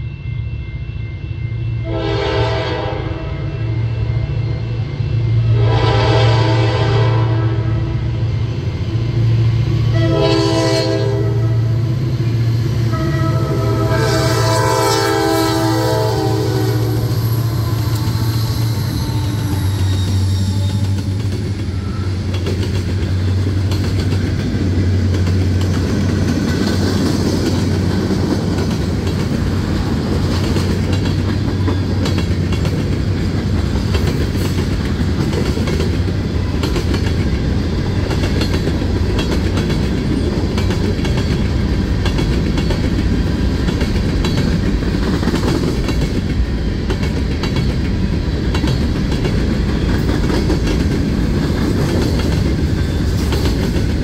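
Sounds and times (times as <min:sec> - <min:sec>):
locomotive air horn: 0:01.8 - 0:04.3, 0:05.4 - 0:08.0, 0:09.9 - 0:11.8, 0:12.9 - 0:21.1
locomotive engine drone: 0:02.9 - 0:45.0
wheels clacking on rails: 0:08.2 - 0:54.0
freight cars rumbling: 0:15.4 - 0:54.0.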